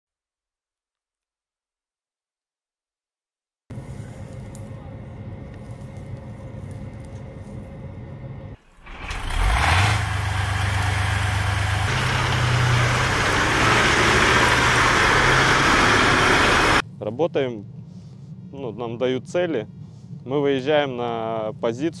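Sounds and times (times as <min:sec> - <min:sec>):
tank diesel engine revving: 0:08.7 - 0:16.8.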